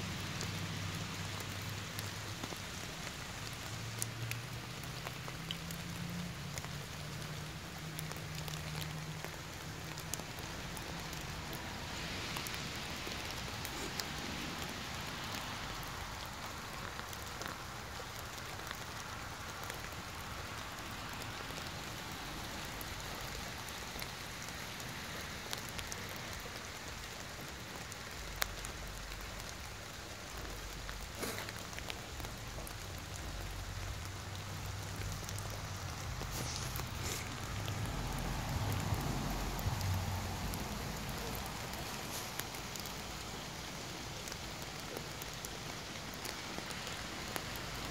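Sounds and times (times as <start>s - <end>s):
rain pattering on wet ground: 0.0s - 47.9s.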